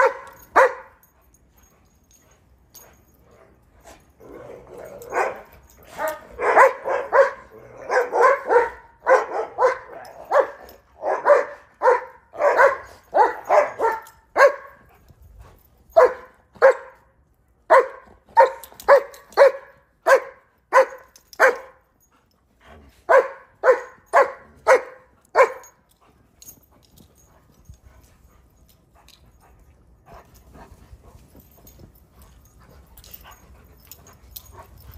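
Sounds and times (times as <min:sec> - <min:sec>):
dogs barking in play: 0:00.0 - 0:01.2, 0:02.8 - 0:15.2, 0:15.9 - 0:28.3.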